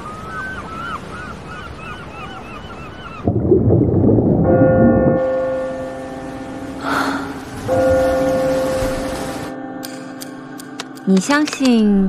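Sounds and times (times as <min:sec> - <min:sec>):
seabirds crying: 0:00.0 - 0:03.4
sustained low chord: 0:03.6 - 0:11.2.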